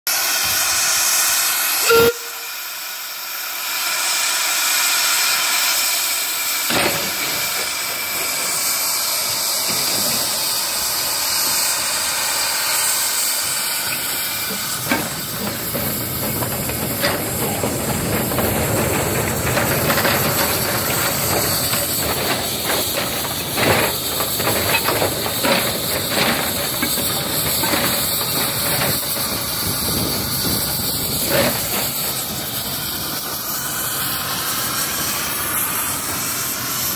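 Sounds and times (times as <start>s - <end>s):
steam locomotive hissing: 0.1s - 36.9s
metallic clanks and knocks: 6.7s - 12.1s, 13.4s - 32.3s.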